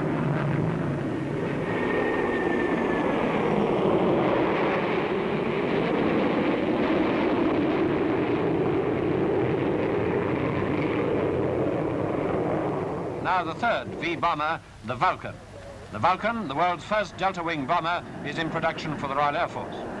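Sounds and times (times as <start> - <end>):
jet roar of plane flying past: 0.0 - 14.8.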